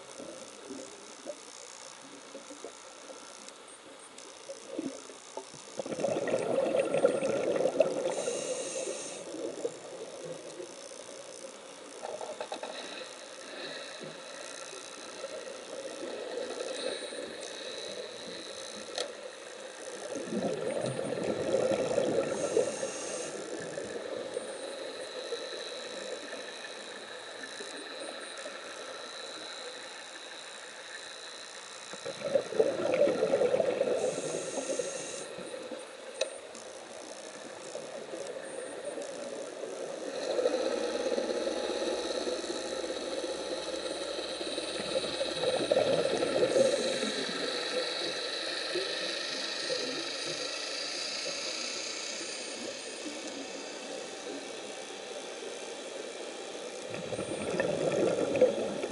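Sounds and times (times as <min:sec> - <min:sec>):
background hiss: 0:00.0 - 0:58.9
regulator bubbles underwater: 0:04.7 - 0:10.5, 0:20.0 - 0:24.5, 0:31.9 - 0:35.8, 0:37.8 - 0:48.2, 0:56.8 - 0:58.9.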